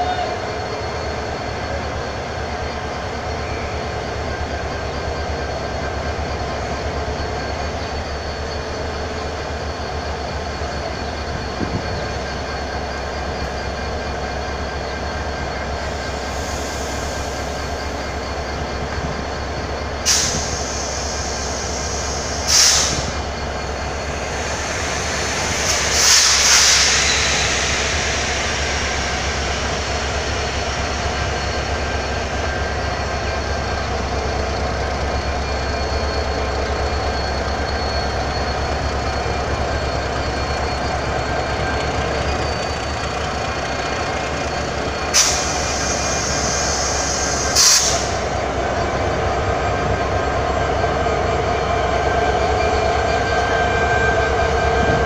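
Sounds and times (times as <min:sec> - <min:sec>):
diesel locomotive engine drone: 0:00.0 - 0:55.0
high-pitched noise bursts: 0:23.2 - 0:33.2.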